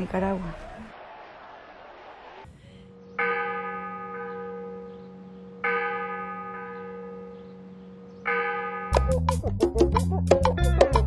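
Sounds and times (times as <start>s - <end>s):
church bell ringing: 2.9s - 9.3s.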